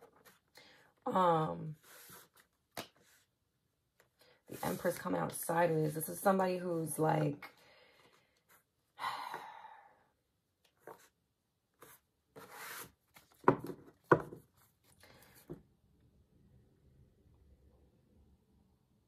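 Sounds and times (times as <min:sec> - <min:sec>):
cards sliding and shuffling: 0:01.8 - 0:03.3, 0:11.8 - 0:13.6.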